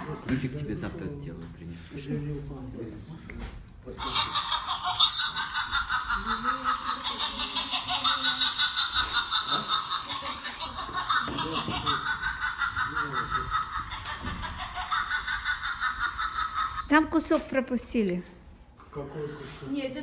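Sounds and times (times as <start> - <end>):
snickering laughter: 4.0 - 16.9.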